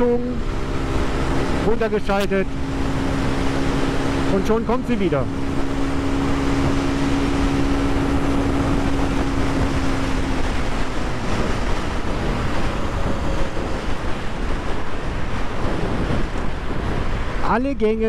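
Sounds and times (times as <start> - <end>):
motorcycle engine running: 0.0 - 17.4
loud wind rush on microphone: 0.0 - 18.0.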